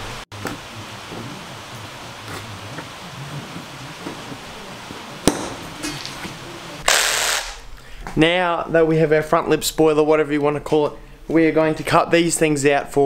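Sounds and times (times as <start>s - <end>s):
rain hissing: 0.0s - 8.0s.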